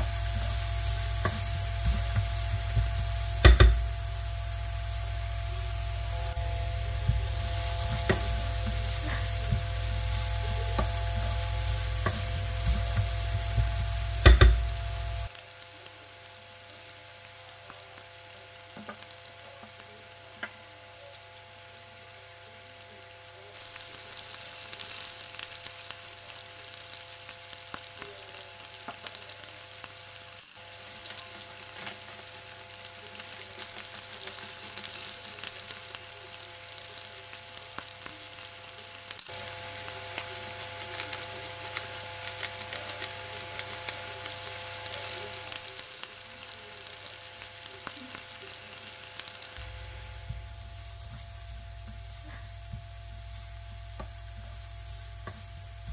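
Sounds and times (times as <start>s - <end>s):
spatula stirring: 0.0s - 15.3s
steady low hum: 0.0s - 15.3s, 49.6s - 55.9s
cabbage sizzling in frying pan: 0.0s - 55.9s.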